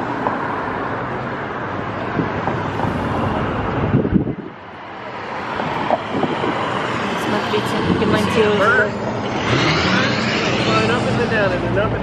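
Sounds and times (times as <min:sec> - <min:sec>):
street traffic noise: 0:00.0 - 0:12.0
wind buffeting microphone: 0:02.0 - 0:04.8, 0:05.4 - 0:09.7.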